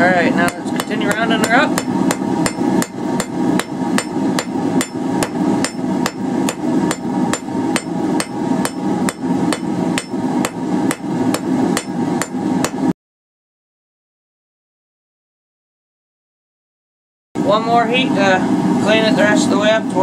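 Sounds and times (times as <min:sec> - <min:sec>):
steady hum: 0:00.0 - 0:13.0, 0:17.4 - 0:20.0
hammer striking metal bar on anvil: 0:00.4 - 0:12.9.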